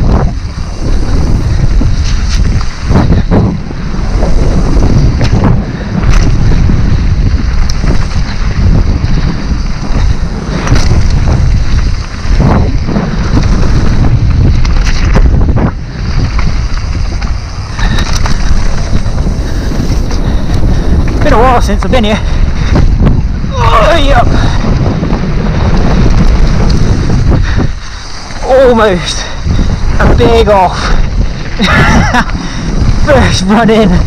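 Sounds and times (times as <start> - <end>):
bike knocks and rattles: 0.0 - 21.9
tyre noise on gravel: 0.0 - 34.0
wind buffeting microphone: 0.0 - 34.0.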